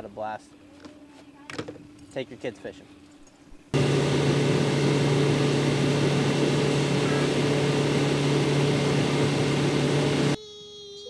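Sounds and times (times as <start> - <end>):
boat motor drone: 3.8 - 10.4.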